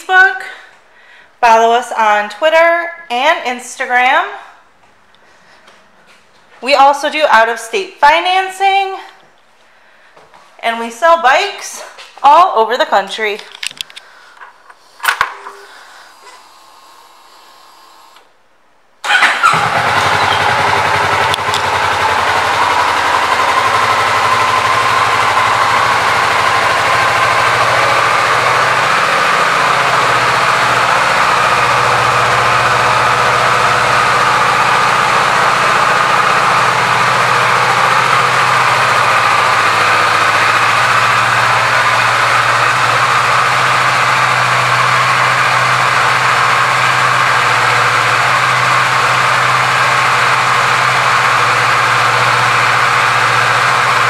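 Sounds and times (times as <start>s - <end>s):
motorcycle engine idling: 19.1s - 54.0s.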